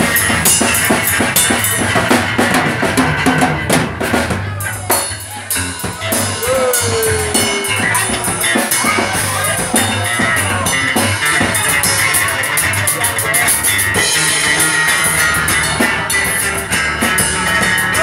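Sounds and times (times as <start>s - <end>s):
electric guitar: 0.0s - 18.0s
low bass notes: 0.0s - 18.0s
drum hits: 1.7s - 10.6s.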